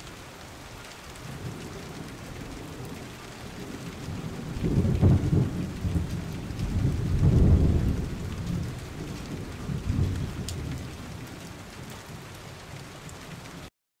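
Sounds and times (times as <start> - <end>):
steady rain: 0.0 - 13.7
rolls of thunder: 1.4 - 11.2.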